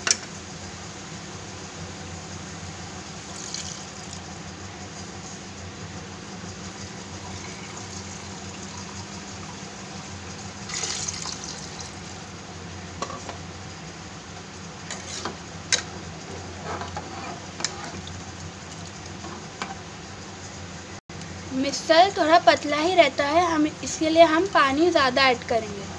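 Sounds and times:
steady low hum: 0:00.0 - 0:25.9
water pouring into pot: 0:03.2 - 0:04.3, 0:07.0 - 0:09.7, 0:10.6 - 0:12.3.

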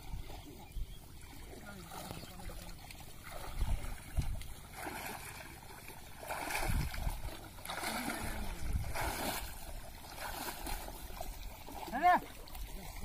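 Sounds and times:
person wading through water: 0:00.0 - 0:13.0.

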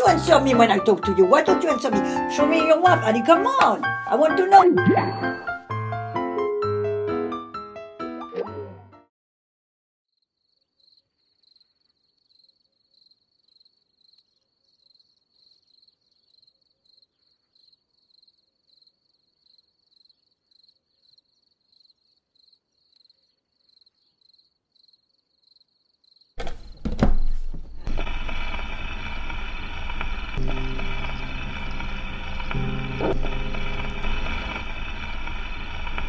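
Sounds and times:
music cue: 0:00.0 - 0:09.0, 0:30.4 - 0:35.6
cricket chirping: 0:10.2 - 0:26.4.

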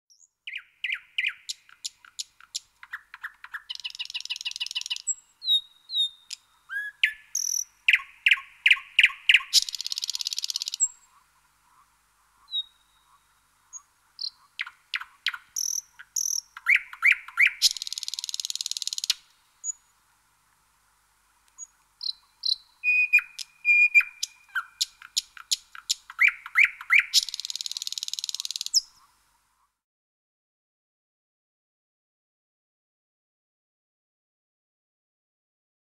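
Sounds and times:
nightingale singing: 0:00.1 - 0:11.8, 0:12.4 - 0:20.0, 0:21.5 - 0:29.1.

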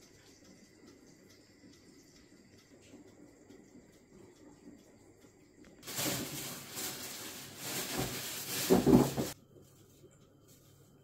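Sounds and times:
rustling handling noise: 0:05.8 - 0:09.9.

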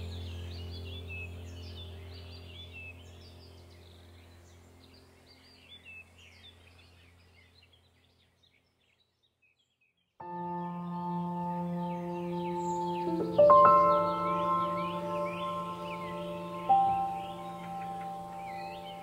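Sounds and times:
ambient music drone: 0:00.0 - 0:07.1, 0:10.2 - 0:19.0
birds chirping: 0:00.0 - 0:19.0
bell-like ambient tones: 0:10.2 - 0:19.0.

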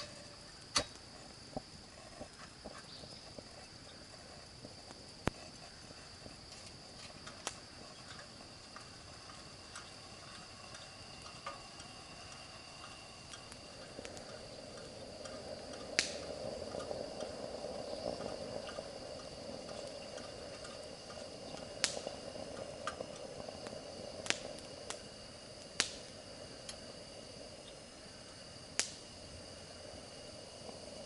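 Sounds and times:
high-pitched insect calls: 0:00.0 - 0:31.0
sharp clicks or pops: 0:16.0 - 0:16.3.

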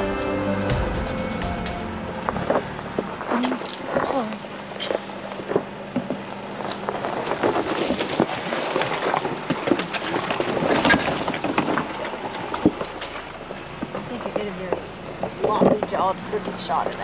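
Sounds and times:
tyres crunching over rough ground: 0:02.0 - 0:17.0.

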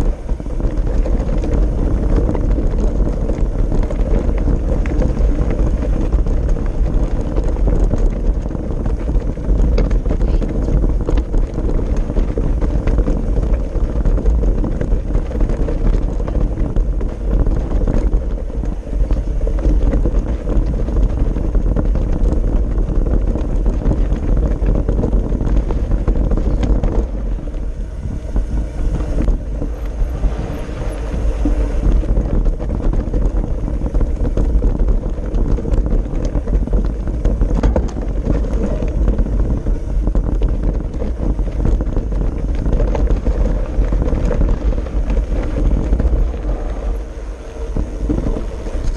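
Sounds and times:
bike tyres crunching on stones: 0:00.0 - 0:48.9
wind buffeting microphone: 0:00.0 - 0:48.9.

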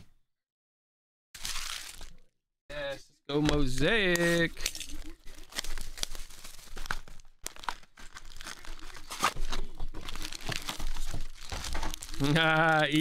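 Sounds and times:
foil packs crinkling: 0:01.4 - 0:02.3, 0:03.5 - 0:13.0
cardboard box tearing: 0:05.4 - 0:12.4.

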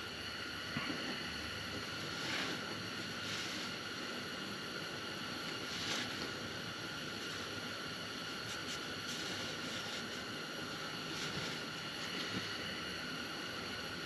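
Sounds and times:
steady background hiss: 0:00.0 - 0:14.0
cloth rubbing on metal: 0:02.0 - 0:04.5, 0:05.3 - 0:12.7.

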